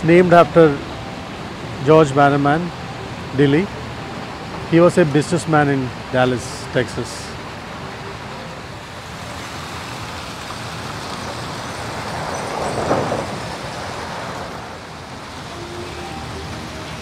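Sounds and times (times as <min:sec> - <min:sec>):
city street traffic: 0:00.0 - 0:17.0
vehicle passing: 0:08.4 - 0:17.0.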